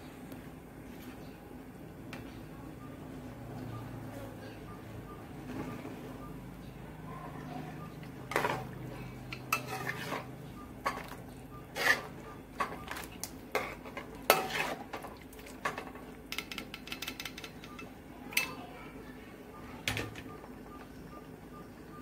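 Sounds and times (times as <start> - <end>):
metal ladle scraping a wok: 9.6 - 10.3, 11.7 - 12.1, 13.6 - 14.9.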